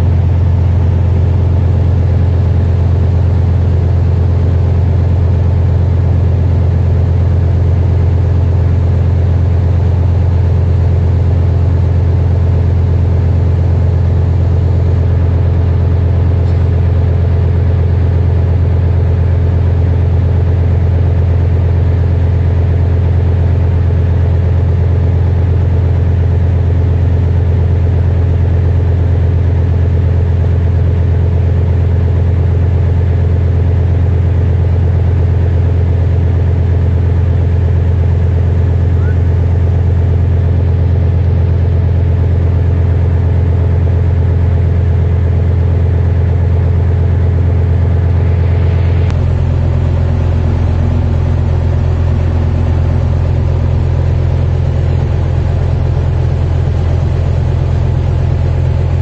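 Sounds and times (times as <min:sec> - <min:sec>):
boat diesel engine droning: 0:00.0 - 0:59.0.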